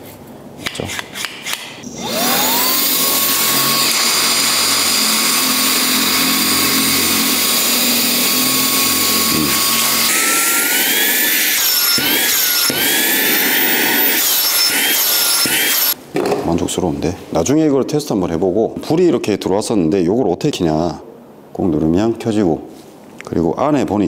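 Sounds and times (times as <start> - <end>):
handheld vacuum motor whine: 2.0 - 16.0.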